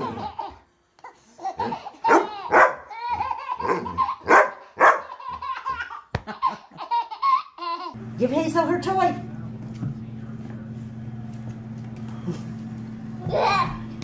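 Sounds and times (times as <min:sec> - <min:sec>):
baby laughing and squealing: 0:00.0 - 0:08.0, 0:13.2 - 0:13.8
dog barking: 0:02.1 - 0:02.8, 0:03.6 - 0:05.1.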